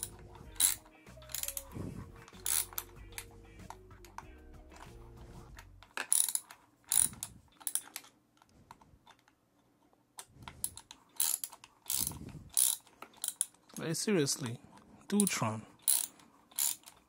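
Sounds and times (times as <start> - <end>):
metallic clicks from hand tool: 0.0 - 1.7.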